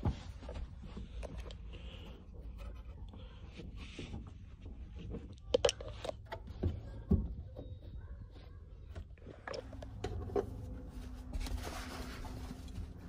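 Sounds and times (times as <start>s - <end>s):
towel rustling: 10.4s - 13.0s.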